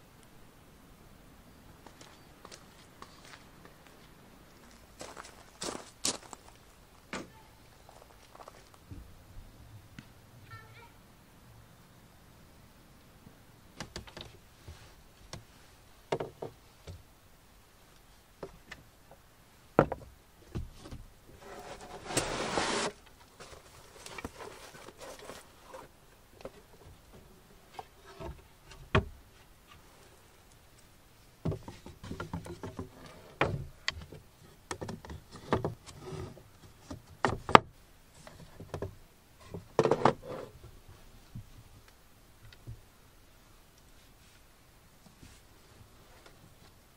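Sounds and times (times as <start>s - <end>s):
scraping rustle: 20.7s - 26.8s.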